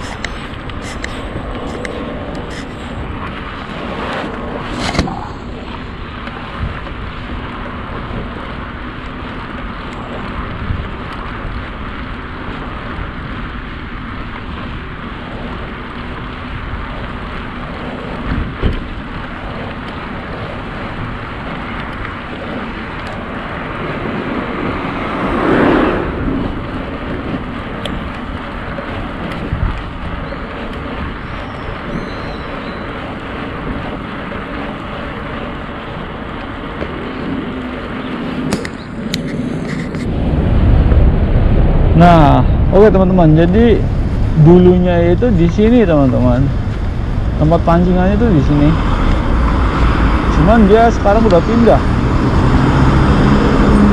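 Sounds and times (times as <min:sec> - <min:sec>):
bicycle road noise: 0:00.0 - 0:53.9
wind: 0:00.0 - 0:53.9
car driving past: 0:24.0 - 0:27.4, 0:48.4 - 0:53.9.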